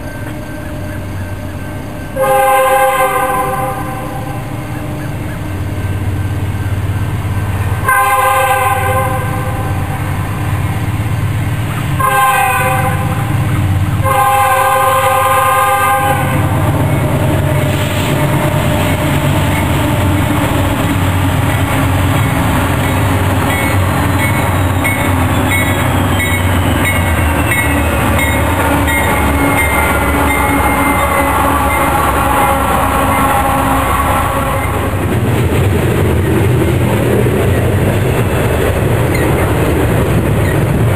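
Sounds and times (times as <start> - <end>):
train rumbling past: 0.0 - 40.9
locomotive air horn blasts: 2.2 - 4.6, 7.8 - 10.0, 12.0 - 13.4, 14.0 - 18.8, 28.3 - 35.0
wheels clicking over rail joints: 35.0 - 40.9.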